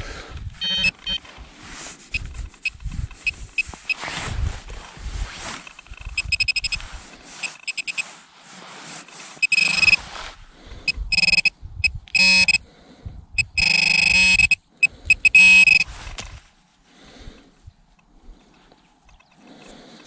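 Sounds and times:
metal detector buzzing: 0.6 - 1.2, 5.7 - 8.0, 9.4 - 10.0, 10.9 - 12.6, 13.4 - 15.9
metal detector beeping: 0.6 - 1.3, 2.1 - 4.1, 5.6 - 8.1, 9.4 - 10.1, 10.9 - 12.6, 13.4 - 16.2.

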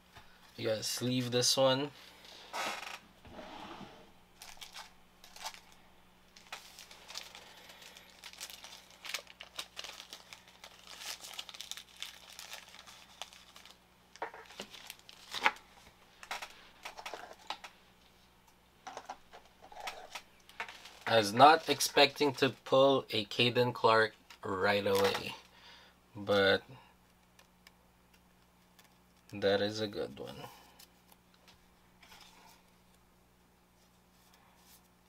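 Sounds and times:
plastic sleeve crinkling: 4.4 - 17.7, 19.6 - 22.7.

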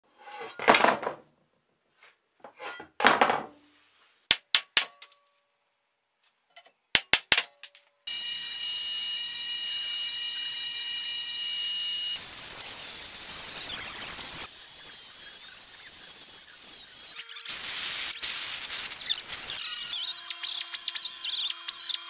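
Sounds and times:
belt grinder whining: 8.1 - 22.0.

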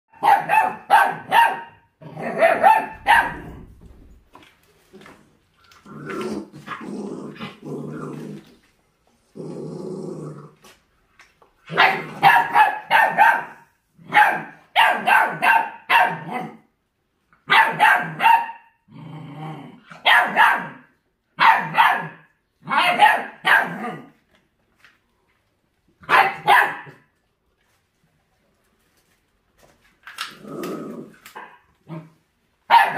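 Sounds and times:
dogs barking loudly: 0.1 - 3.8, 11.7 - 16.6, 17.4 - 18.8, 19.9 - 24.1, 26.0 - 27.1, 32.7 - 32.9
dogs growling: 5.7 - 10.8, 18.9 - 19.9, 30.3 - 32.2.

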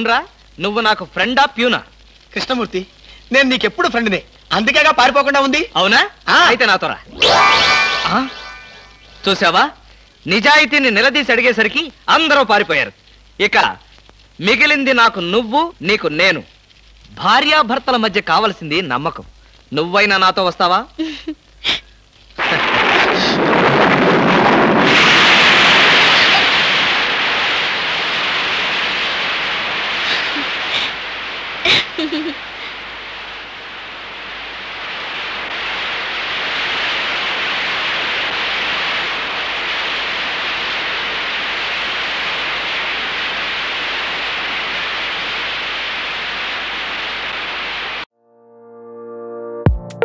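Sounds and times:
short sharp cracks: 22.2 - 33.8
heavy rain falling: 22.4 - 48.1.

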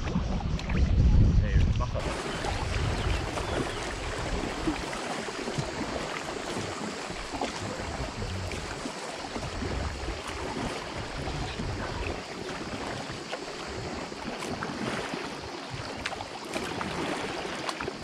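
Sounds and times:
low rumble: 0.0 - 3.3
water splashing around kayak: 0.0 - 18.0.

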